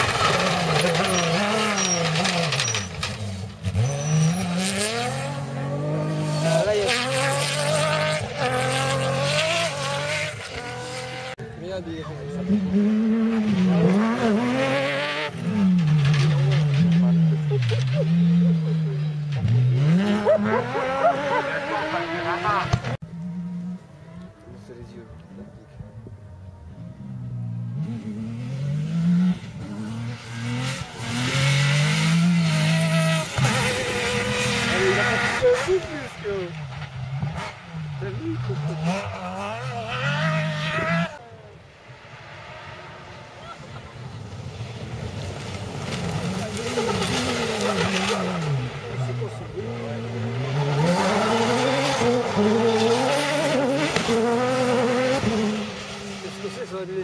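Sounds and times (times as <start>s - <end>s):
tyres rushing on dirt: 0.0s - 23.1s, 28.0s - 57.0s
buggy engine revving: 0.0s - 57.0s.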